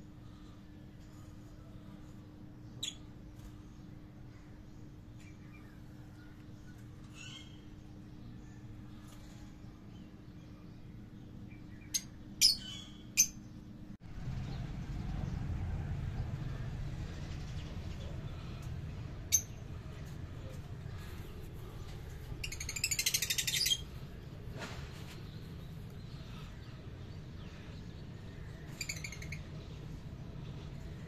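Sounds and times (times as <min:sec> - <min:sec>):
low rumble of handling noise: 0:13.4 - 0:31.0.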